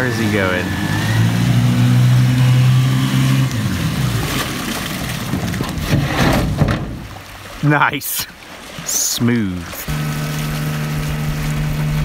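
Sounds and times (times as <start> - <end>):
outboard motor running: 0.0 - 6.0, 9.6 - 12.0
water splashing against hull: 0.0 - 12.0.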